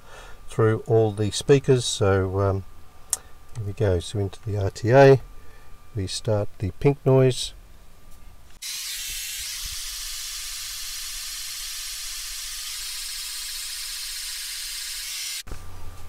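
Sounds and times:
pink noise hiss: 0:08.6 - 0:15.5.

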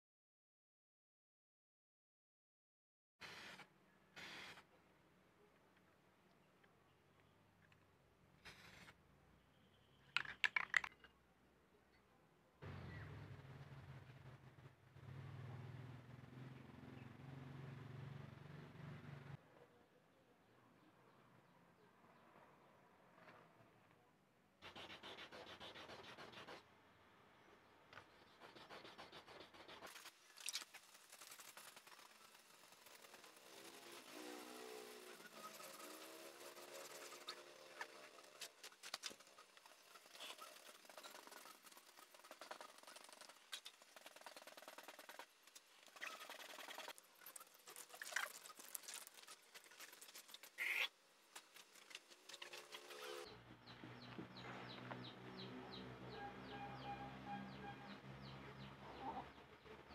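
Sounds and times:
sandpaper scratching on paint: 0:24.6 - 0:26.6, 0:28.2 - 0:30.2, 0:30.8 - 0:45.2
water splashing on plastic: 0:38.4 - 0:52.9.

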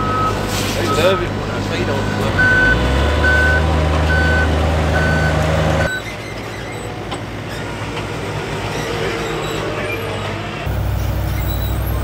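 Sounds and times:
forklift engine hum: 0:00.0 - 0:12.0
outdoor background noise: 0:00.0 - 0:12.0
reverse alarm beeping: 0:02.3 - 0:06.0.

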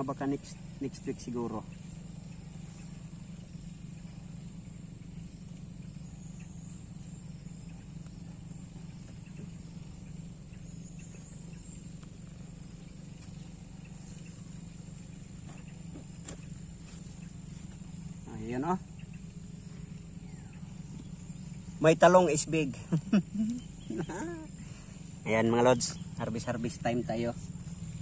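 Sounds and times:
insect drone: 0:00.0 - 0:28.0.

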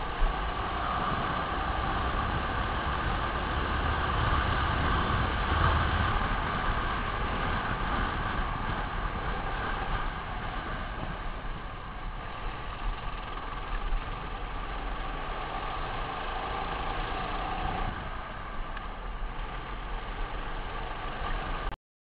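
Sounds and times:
wind rushing on microphone: 0:00.0 - 0:14.2
racing kart engine running: 0:00.0 - 0:21.8.

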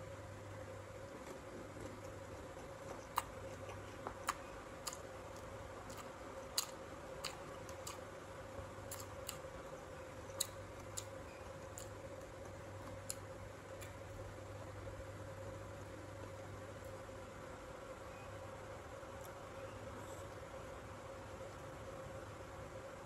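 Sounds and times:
faint steady hum: 0:00.0 - 0:23.0
crunchy fruit chewing: 0:01.0 - 0:14.3.

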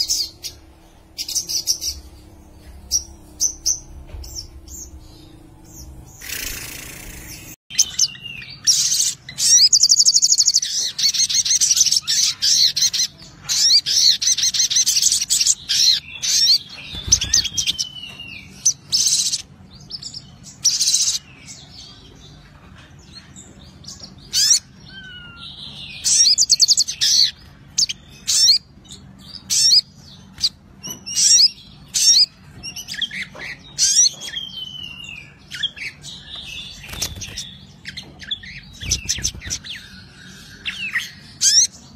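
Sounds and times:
bird chattering trills: 0:00.0 - 0:08.1, 0:35.6 - 0:41.8.

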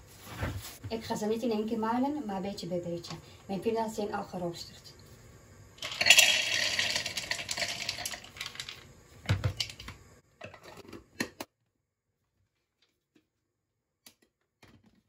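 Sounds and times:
peanuts pouring into plastic bowl: 0:05.8 - 0:08.9.

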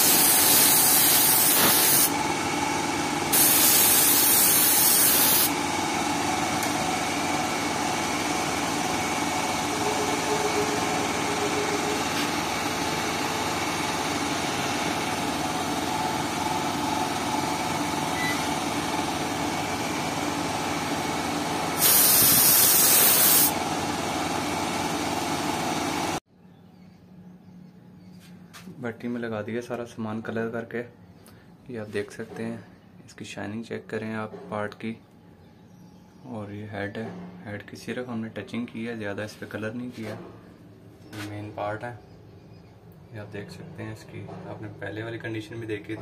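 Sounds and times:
paint sprayer hissing: 0:00.0 - 0:02.2, 0:03.3 - 0:05.6, 0:21.7 - 0:23.6
steady mechanical hum: 0:00.0 - 0:46.0.

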